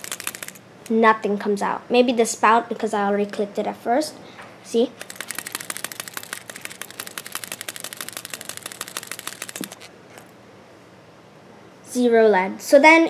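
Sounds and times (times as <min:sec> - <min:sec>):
mechanical pencil rattling: 0:00.0 - 0:00.6, 0:05.0 - 0:10.3.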